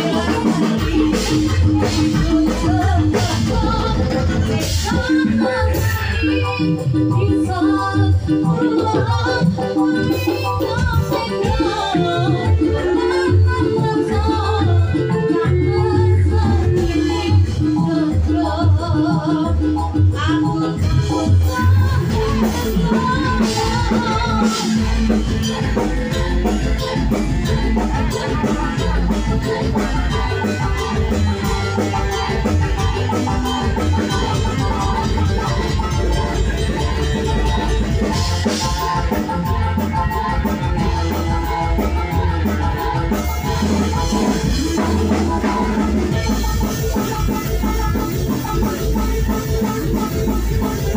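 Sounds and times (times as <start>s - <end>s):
music with singing and heavy bass: 0.0s - 50.9s
fast high ticking percussion: 19.7s - 50.9s.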